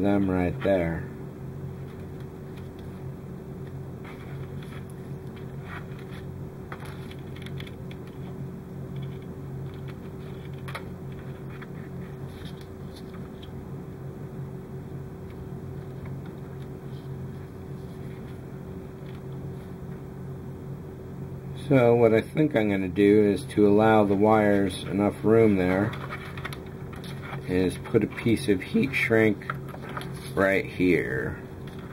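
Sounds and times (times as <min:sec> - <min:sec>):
low background hum: 0:00.0 - 0:31.9
wires rustling and clicking: 0:01.8 - 0:03.0, 0:03.6 - 0:13.6, 0:23.9 - 0:30.4, 0:31.6 - 0:31.9.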